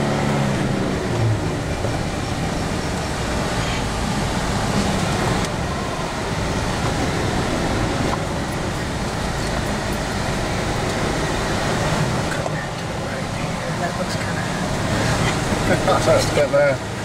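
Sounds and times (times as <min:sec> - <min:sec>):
car engine running: 0:00.0 - 0:17.0.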